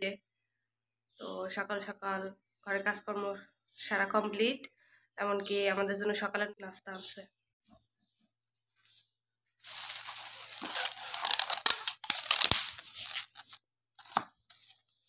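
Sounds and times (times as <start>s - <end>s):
plastic bag rustling: 9.6s - 14.8s
foam boxes clicking: 9.7s - 14.7s.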